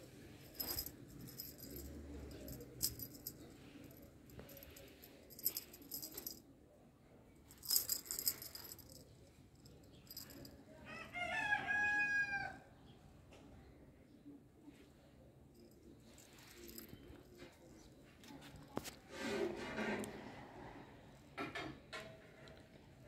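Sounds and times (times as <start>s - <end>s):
light jingling rattle: 0.3s - 6.4s, 7.5s - 10.6s, 15.6s - 17.8s.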